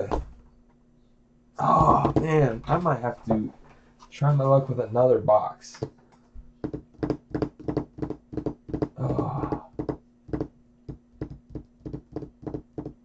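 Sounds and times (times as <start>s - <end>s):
fingers tapping on wooden table: 6.6s - 13.0s.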